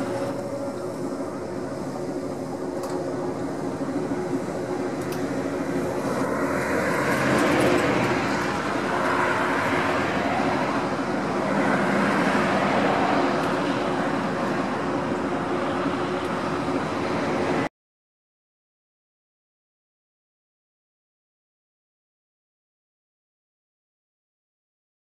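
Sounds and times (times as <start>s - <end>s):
steady low hum: 0.0s - 17.7s
cars passing close by: 5.2s - 17.7s.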